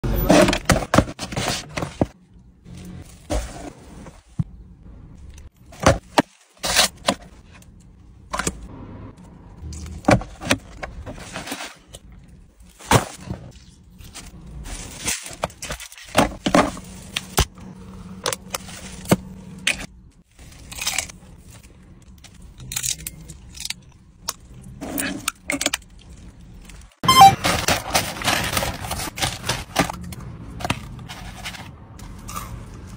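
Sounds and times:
paper and packaging rustling: 0.2s - 4.4s, 10.1s - 17.4s, 25.8s - 32.2s
person crunching food: 20.4s - 21.7s.

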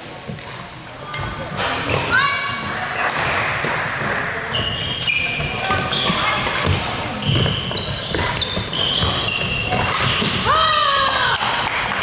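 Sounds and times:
shoes squeaking on wooden floor: 4.5s - 10.3s
rackets striking shuttlecocks: 8.1s - 10.5s.

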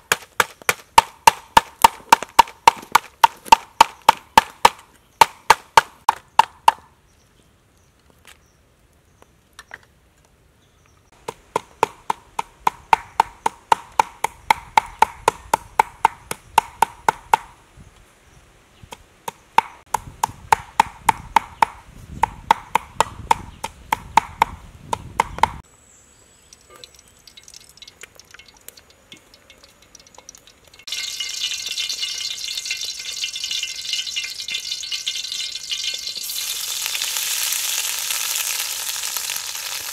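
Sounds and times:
oil sizzling in a wok: 27.0s - 39.9s.

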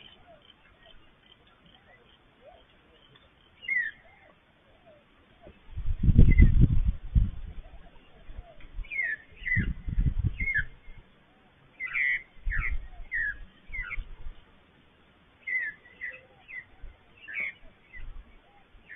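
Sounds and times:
magpie calling: 0.0s - 5.5s, 11.8s - 14.0s, 15.4s - 18.9s.

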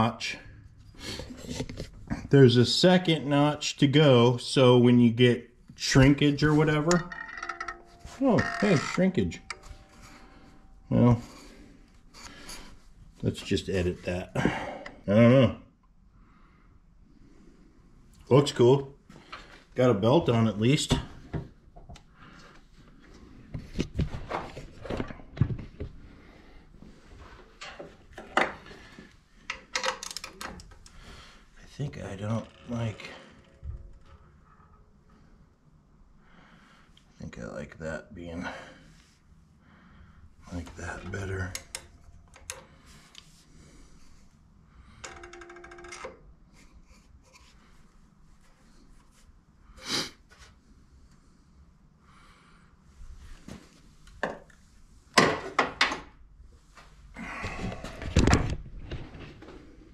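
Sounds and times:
ringing tone with rattle: 6.5s - 11.0s, 44.9s - 46.2s.

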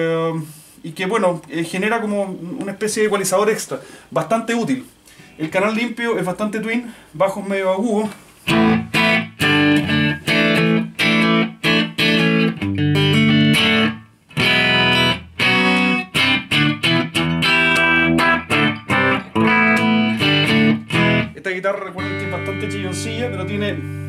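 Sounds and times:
electric guitar chords and notes: 8.4s - 24.0s.

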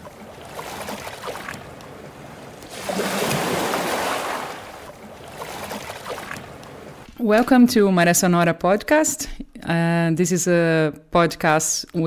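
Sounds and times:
sea waves washing: 0.0s - 7.1s.

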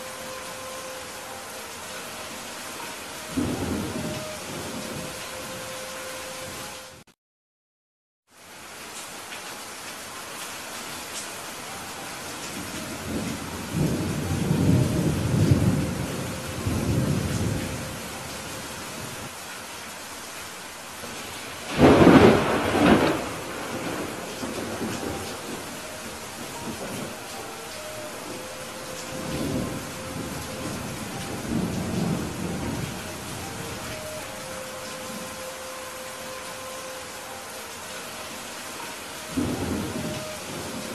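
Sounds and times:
rain hissing: 0.0s - 7.0s, 8.3s - 40.9s
thunder rumbling: 3.3s - 5.2s, 12.8s - 19.2s, 21.0s - 35.4s, 39.3s - 40.9s.

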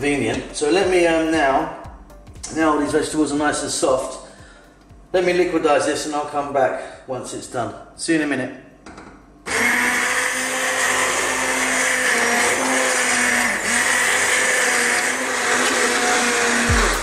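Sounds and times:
immersion blender whirring: 9.4s - 17.0s.

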